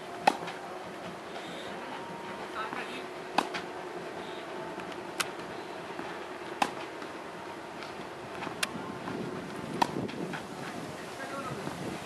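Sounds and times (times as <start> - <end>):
outdoor background noise: 0.0 - 12.0
tennis ball bouncing on dirt: 0.2 - 0.6, 2.6 - 3.7, 4.8 - 7.2, 7.8 - 10.5
tennis ball struck by racket: 0.2 - 0.6, 2.7 - 3.7, 4.8 - 7.1, 7.8 - 10.4.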